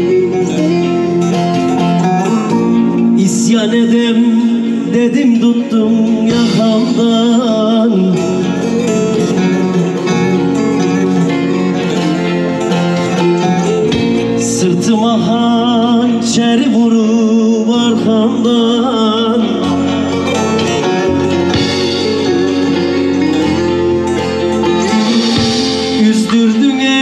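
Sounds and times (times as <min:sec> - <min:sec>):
plucked string folk music: 0:00.0 - 0:27.0.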